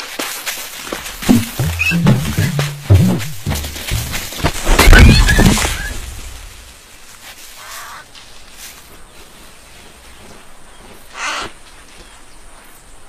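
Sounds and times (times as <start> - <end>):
faint steady hiss: 5.4 - 10.1
crow-like bird caws: 7.6 - 8.1, 11.1 - 11.6.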